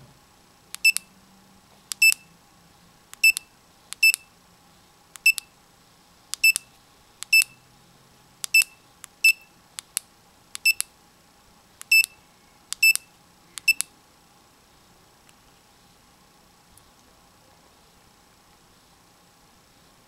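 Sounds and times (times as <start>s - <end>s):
watch button click beeps: 0.8s - 1.1s, 2.0s - 2.2s, 3.2s - 4.3s, 5.2s - 5.5s, 6.4s - 7.6s, 8.5s - 9.5s, 10.6s - 10.9s, 11.8s - 12.2s, 12.8s - 13.9s.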